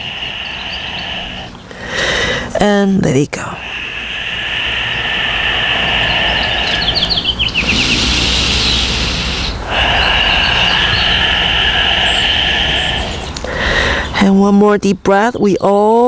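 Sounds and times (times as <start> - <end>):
steady high-pitched tone: 3.6 - 13.3
rush of hiss: 3.6 - 13.8.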